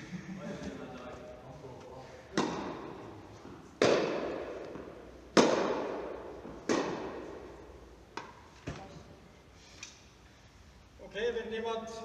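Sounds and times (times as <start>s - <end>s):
racket hitting tennis ball: 2.3s - 8.9s.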